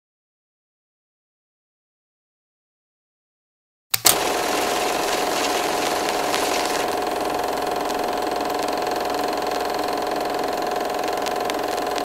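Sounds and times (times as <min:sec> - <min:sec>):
small motor humming: 0:04.1 - 0:12.0.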